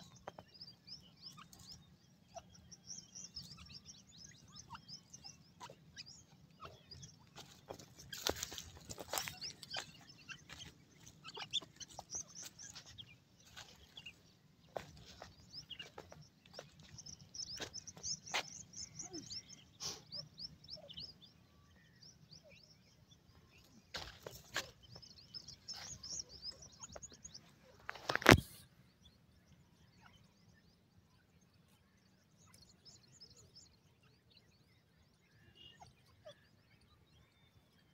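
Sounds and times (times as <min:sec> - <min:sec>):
chicks peeping: 0:00.0 - 0:21.2.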